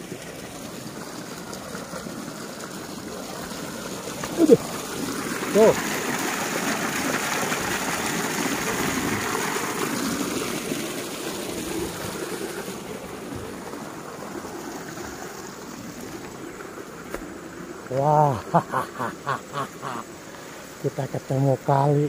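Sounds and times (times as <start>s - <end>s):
water gushing from pipe: 0.0s - 22.0s.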